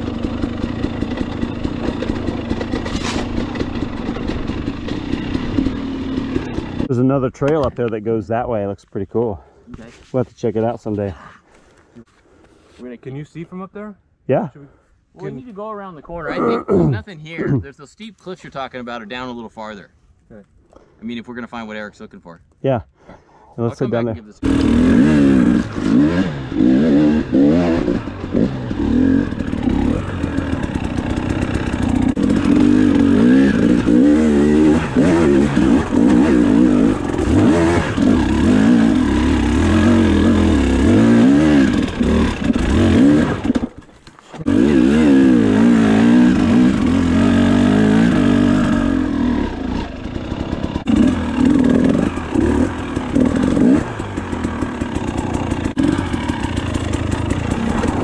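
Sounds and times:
dirt bike engine revving: 0.0s - 7.0s, 24.4s - 43.8s, 44.4s - 58.0s.

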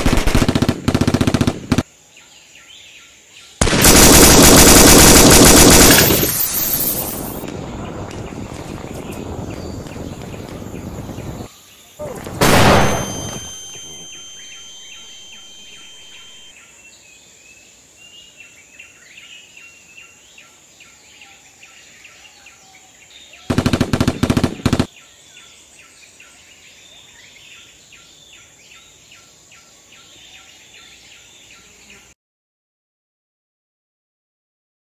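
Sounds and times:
machine-gun fire: 0.0s - 1.8s, 3.6s - 7.4s, 12.4s - 16.5s, 23.5s - 24.9s
bird chirps: 5.9s - 16.6s
explosion: 12.0s - 14.0s.

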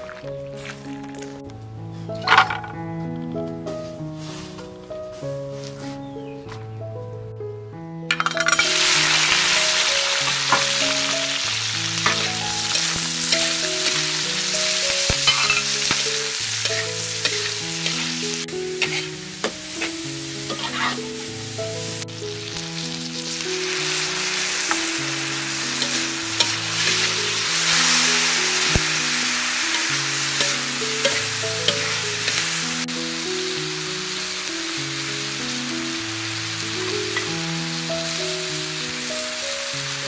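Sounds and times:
soft background music: 0.0s - 40.0s
food sizzling in hot oil: 8.2s - 40.0s
metal spatula scraping wok: 12.0s - 21.1s, 25.6s - 32.6s.

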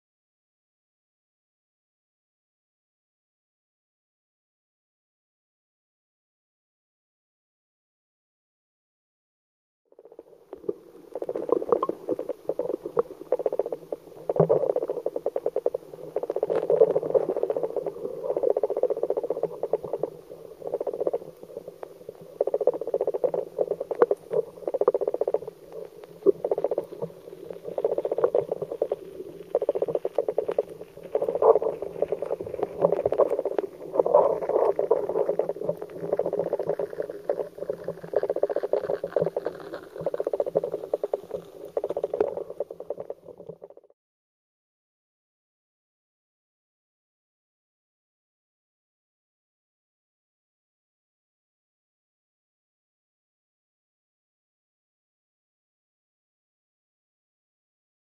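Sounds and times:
crackling and bubbling patter: 9.9s - 44.0s
river current heard underwater: 9.9s - 44.0s.

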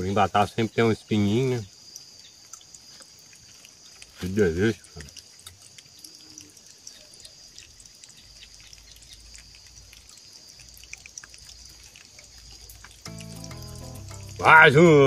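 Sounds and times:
high-pitched background hiss: 0.0s - 3.1s, 12.9s - 15.0s.

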